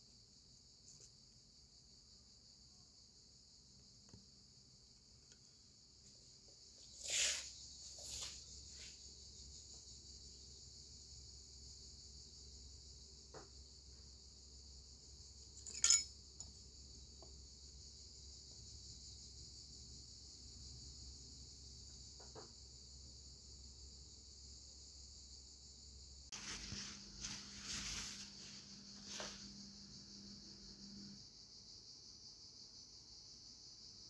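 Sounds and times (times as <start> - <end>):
high insect chorus: 0.0 - 34.0
sharp clink: 15.6 - 16.2.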